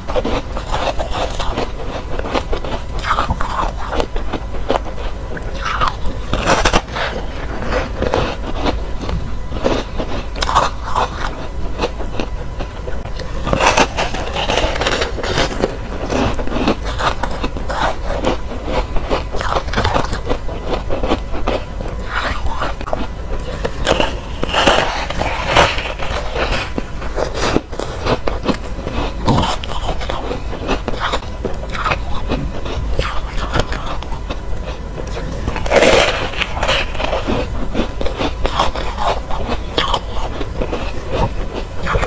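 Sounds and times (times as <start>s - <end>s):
crunchy food chewed close-up: 0.0s - 42.0s
teeth scraping hard shell: 0.0s - 42.0s.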